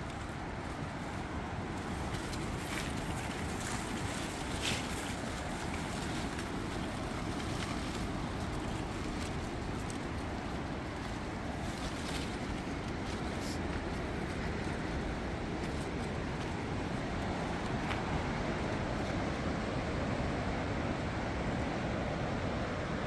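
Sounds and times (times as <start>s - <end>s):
ocean surf breaking on rocks: 0.0s - 23.0s
wind: 0.0s - 23.0s.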